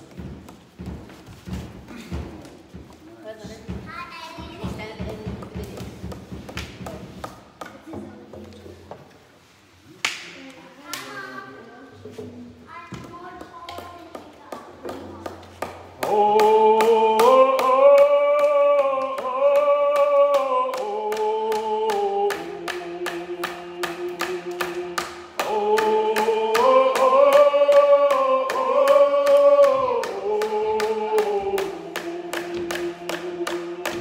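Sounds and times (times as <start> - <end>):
hand drum beat: 0.0 - 7.2, 14.2 - 34.0
group singing: 15.6 - 34.0.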